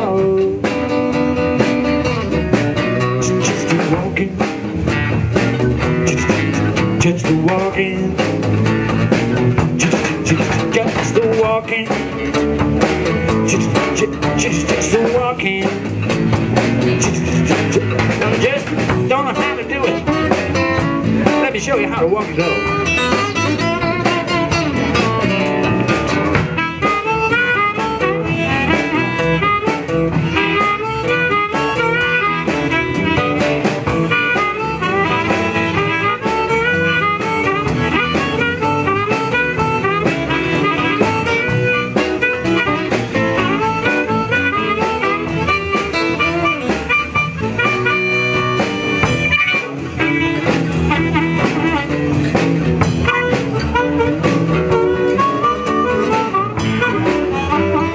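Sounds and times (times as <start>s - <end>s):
acoustic guitars: 0.0s - 57.9s
drum kit: 0.0s - 57.9s
harmonica solo: 22.4s - 25.6s, 26.2s - 57.9s.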